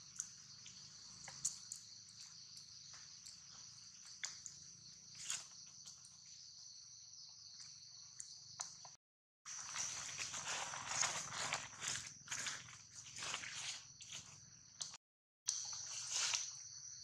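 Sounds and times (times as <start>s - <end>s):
dry leaves crackling: 9.5s - 14.3s.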